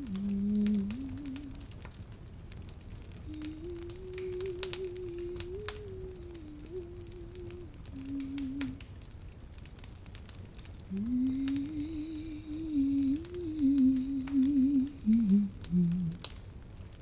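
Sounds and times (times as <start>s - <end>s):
woman humming a lullaby: 0.0s - 1.7s, 3.2s - 8.8s, 10.9s - 16.3s
faint crackles: 0.0s - 17.0s.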